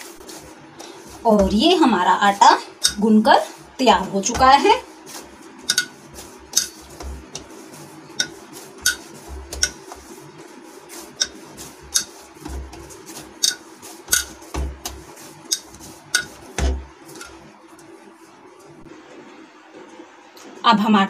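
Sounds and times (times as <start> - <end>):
dough kneaded by hand: 0.0 - 20.0
steel plate clinking on counter: 5.7 - 6.8, 8.2 - 9.8, 12.0 - 12.2, 13.4 - 14.4, 15.5 - 16.4.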